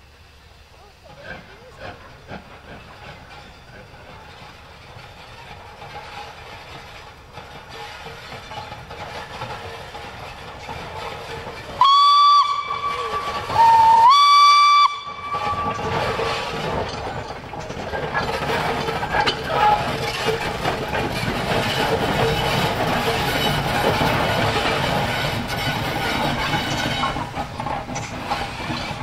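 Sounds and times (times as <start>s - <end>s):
steam locomotive exhaust: 0.0s - 29.0s
train wheels on rails: 0.0s - 29.0s
steam locomotive whistle: 11.8s - 16.0s.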